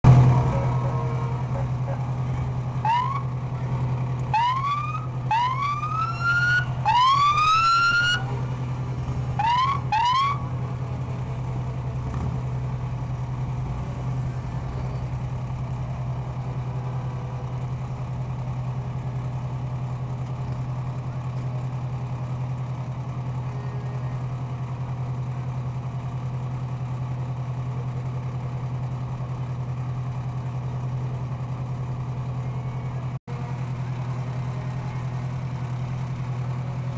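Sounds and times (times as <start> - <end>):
low engine hum: 0.0 - 36.9
electronic siren whooping: 2.8 - 3.4, 4.3 - 8.4, 9.4 - 10.5.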